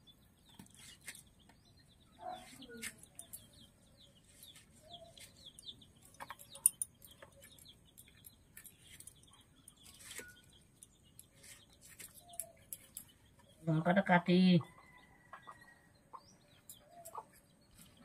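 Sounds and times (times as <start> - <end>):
small birds chirping: 0.0 - 18.0
chickens clucking: 14.6 - 18.0.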